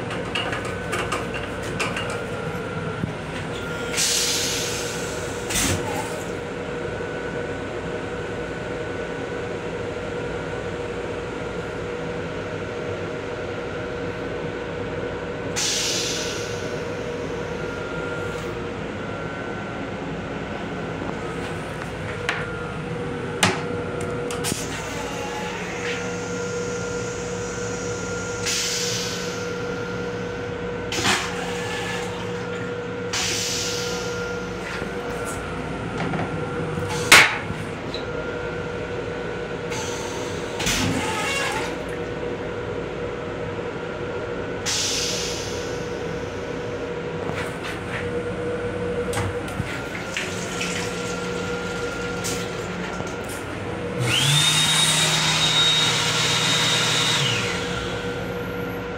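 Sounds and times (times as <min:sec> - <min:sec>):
electric railcar hum: 0:06.3 - 0:54.7, 0:55.4 - 0:58.9
water running from sink faucet: 0:50.0 - 0:52.6.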